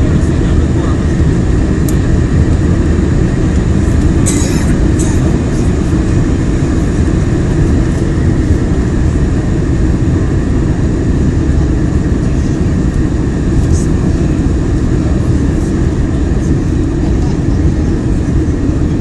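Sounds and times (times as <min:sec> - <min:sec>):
airliner cabin engine roar: 0:00.0 - 0:19.0.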